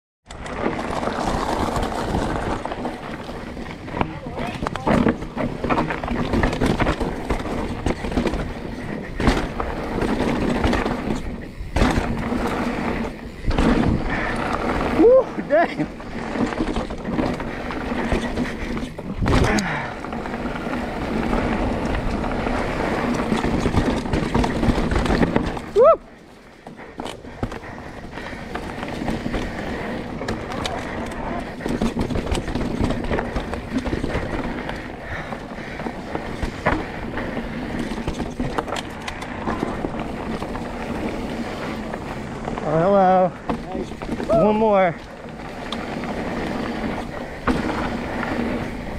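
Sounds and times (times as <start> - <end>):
bike tyres rattling on rocky trail: 0.2 - 48.9
bike knocking over rock ledges: 0.5 - 14.9, 16.0 - 20.4, 23.0 - 25.8.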